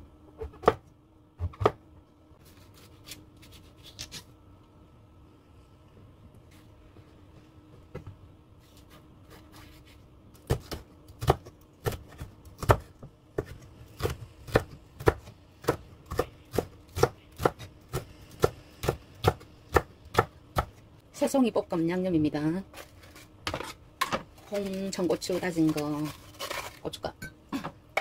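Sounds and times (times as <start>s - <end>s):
knife chopping on wooden board: 10.4s - 20.8s.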